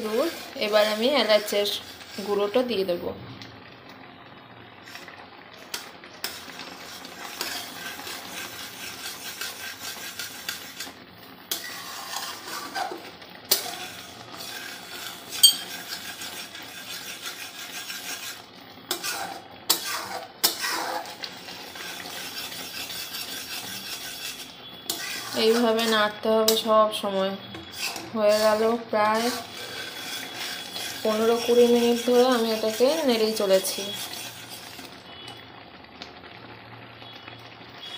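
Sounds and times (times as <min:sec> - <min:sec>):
spatula scraping a metal pan: 0:00.0 - 0:02.7, 0:05.7 - 0:26.7, 0:27.4 - 0:35.3
milk simmering: 0:00.0 - 0:37.9
spatula clinking against pan: 0:15.4 - 0:15.8.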